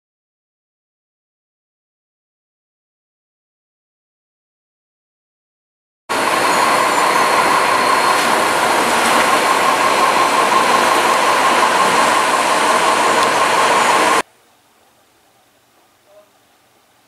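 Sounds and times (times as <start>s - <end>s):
train running on rails: 6.1s - 14.2s.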